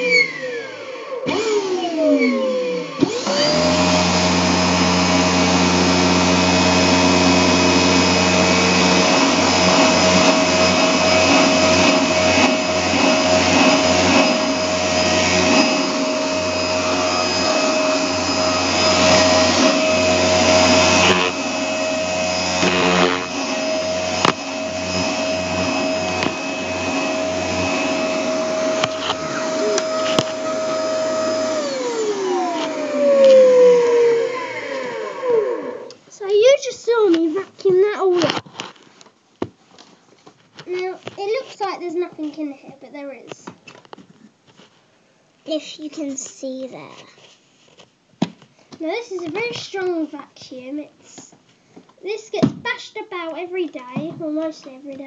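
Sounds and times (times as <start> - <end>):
vacuum cleaner motor whine: 0.0 - 36.0.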